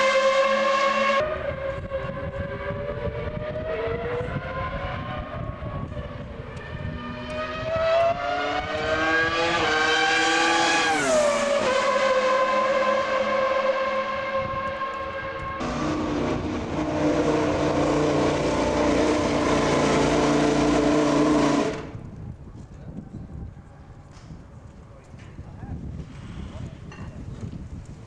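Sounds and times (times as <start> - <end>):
racing car engine at high revs: 0.0 - 22.0.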